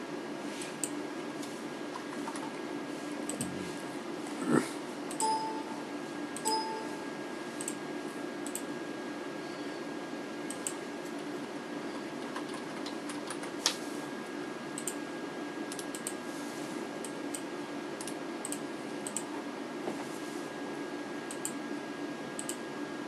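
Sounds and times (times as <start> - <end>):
steady hum: 0.0 - 23.0
short beeps: 5.2 - 5.8, 6.4 - 7.0.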